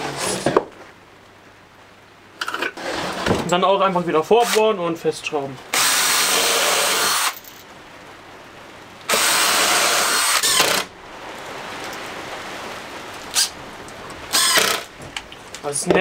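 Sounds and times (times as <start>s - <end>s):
cordless drill running: 5.7s - 7.4s, 9.1s - 10.9s, 14.3s - 14.9s
sharp drill click: 5.8s - 7.4s, 9.1s - 10.9s, 14.3s - 14.9s.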